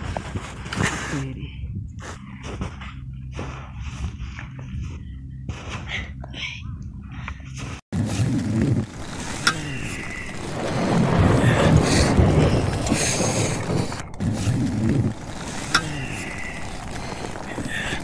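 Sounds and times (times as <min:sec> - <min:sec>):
wind buffeting microphone: 0:08.7 - 0:18.0.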